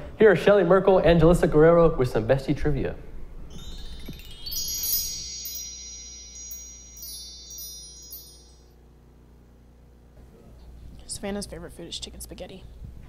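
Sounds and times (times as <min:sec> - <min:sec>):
shimmering chime glissando: 0:03.5 - 0:08.8.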